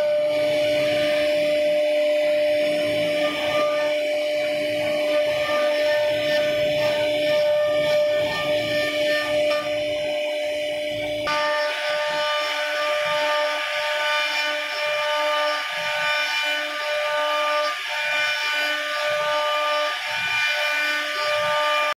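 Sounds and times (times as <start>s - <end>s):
router spindle whine: 0.0s - 22.0s
hiss of wood cutting: 11.3s - 21.9s.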